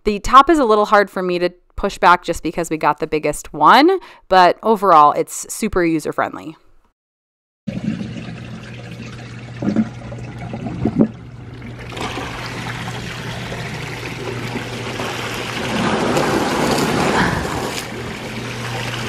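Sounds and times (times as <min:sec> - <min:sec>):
water churning: 0:07.7 - 0:19.0.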